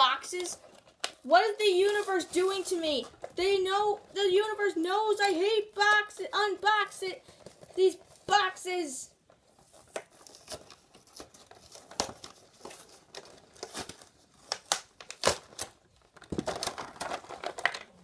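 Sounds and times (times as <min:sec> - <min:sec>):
plastic packaging crinkling: 0:00.0 - 0:04.1, 0:05.8 - 0:08.3, 0:09.2 - 0:18.0
cardboard tearing: 0:09.6 - 0:17.8.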